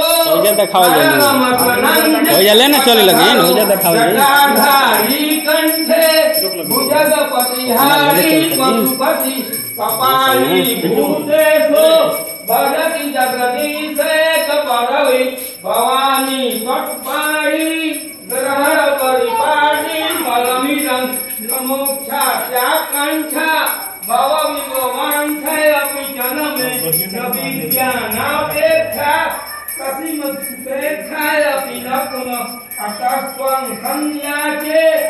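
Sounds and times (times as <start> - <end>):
small bell ringing: 0.0 - 35.0
devotional hymn singing: 7.7 - 11.2.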